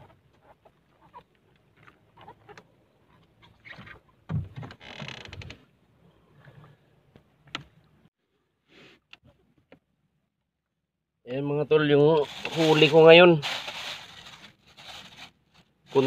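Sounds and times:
rustling: 12.0s - 16.0s.

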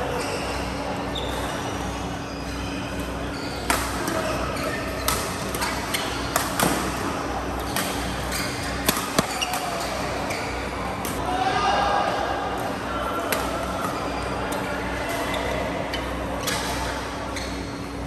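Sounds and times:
steady background hum: 0.0s - 18.0s
racket hitting shuttlecock: 5.0s - 7.1s, 8.8s - 9.8s.

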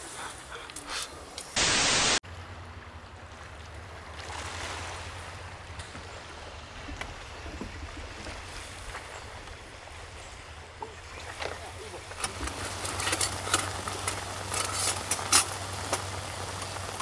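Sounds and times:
loud hiss-like noise burst: 1.6s - 2.2s
small waves washing on pebbles: 3.0s - 17.0s.

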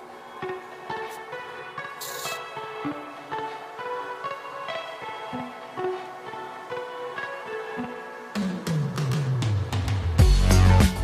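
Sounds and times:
drums and deep bass line: 8.4s - 11.0s.

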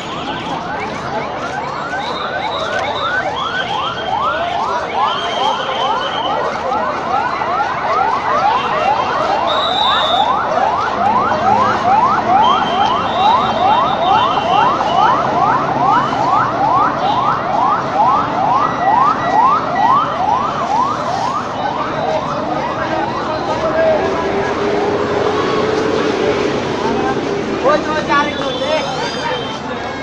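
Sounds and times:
electronic siren yelping: 0.0s - 23.6s
street crowd: 0.0s - 30.0s
traffic noise: 0.0s - 30.0s.

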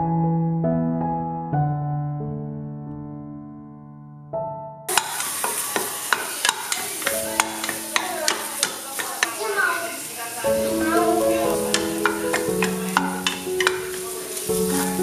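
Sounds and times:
piano music: 0.0s - 15.0s
wooden spatula tapping a pot: 4.9s - 9.8s, 10.7s - 15.0s
ginger sizzling in hot oil: 4.9s - 15.0s.

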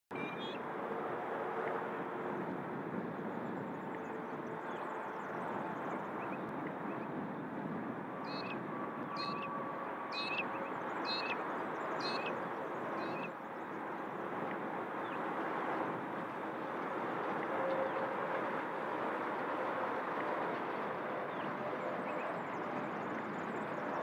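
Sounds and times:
wind buffeting microphone: 0.2s - 24.0s
distant electric train approaching: 7.9s - 24.0s.

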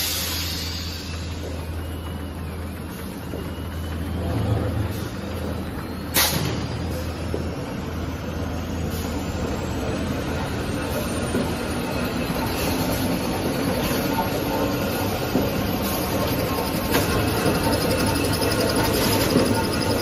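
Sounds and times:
production line rumble and clatter: 0.0s - 20.0s
sharp machine clack: 12.5s - 20.0s.

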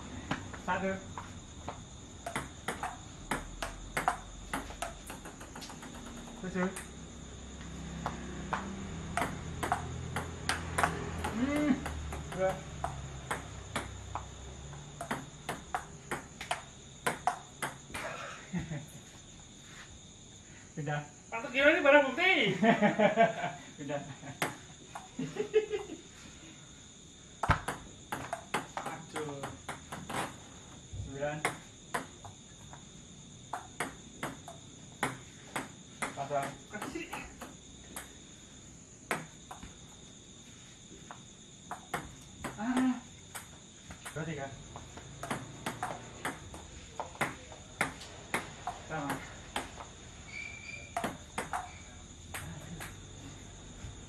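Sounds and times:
crickets trilling: 0.0s - 54.0s
insects chirring: 0.0s - 54.0s
table tennis ball bouncing: 1.7s - 7.0s, 8.0s - 18.1s, 24.4s - 25.2s, 27.4s - 30.4s, 31.4s - 32.4s, 33.5s - 38.2s, 39.1s - 39.7s, 41.1s - 49.9s, 50.7s - 53.1s.

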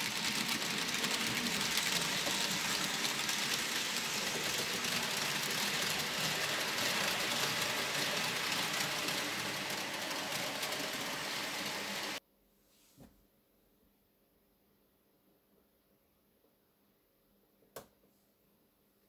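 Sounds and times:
model train motor whirring: 0.0s - 12.2s
wheels rattling over track: 0.0s - 12.2s.

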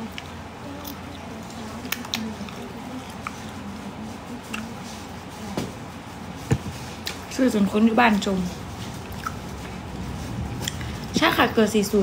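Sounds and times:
soft clicks of eating: 0.0s - 4.9s, 10.6s - 11.0s.

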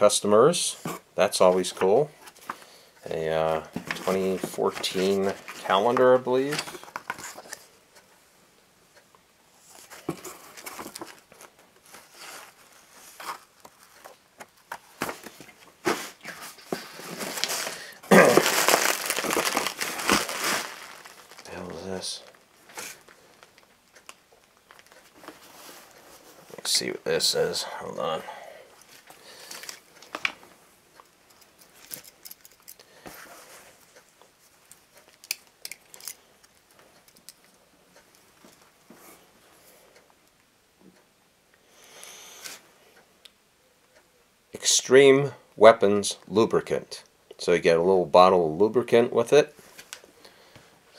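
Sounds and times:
paper and cardboard rustling: 3.6s - 7.7s, 9.7s - 23.5s
bubble wrap crinkling: 15.0s - 25.7s.

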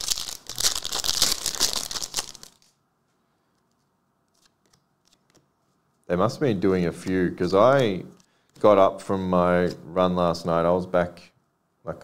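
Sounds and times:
foil wrapper crinkling: 0.0s - 2.8s.

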